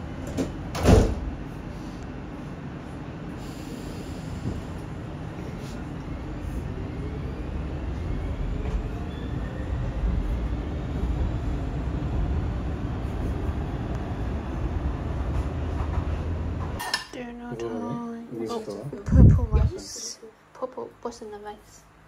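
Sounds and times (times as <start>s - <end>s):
faint rising whine: 1.5s - 16.7s
train wheels rumbling: 3.5s - 16.8s.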